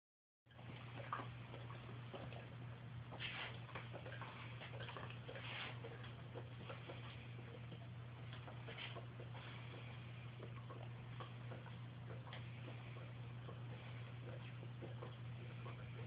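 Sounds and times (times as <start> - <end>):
dog snuffling: 3.1 - 7.6.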